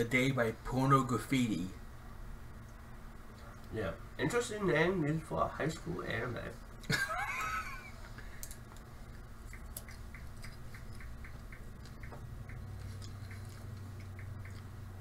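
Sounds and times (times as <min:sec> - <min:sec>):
low steady hum: 0:00.0 - 0:15.0
faint even ticking: 0:09.2 - 0:15.0.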